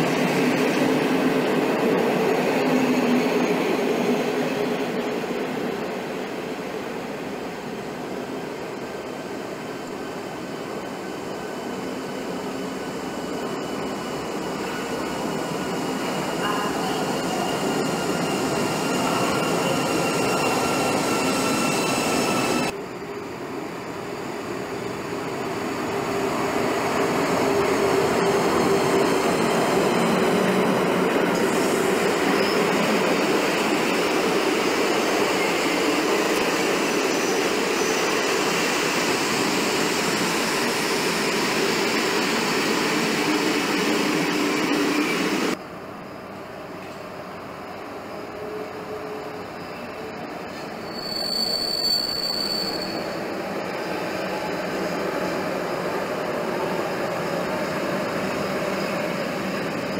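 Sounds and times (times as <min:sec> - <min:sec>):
train wheels on rails: 0:00.0 - 0:45.7
electric locomotive whine: 0:00.0 - 0:59.9.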